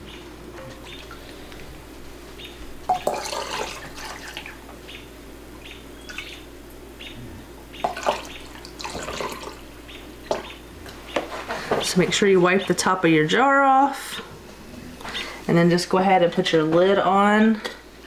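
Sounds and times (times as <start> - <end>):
liquid pouring and trickling: 2.9 - 4.6, 7.8 - 9.6.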